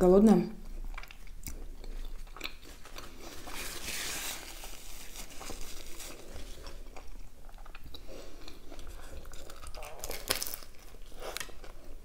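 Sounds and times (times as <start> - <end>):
paper napkin crumpling: 2.7 - 6.8.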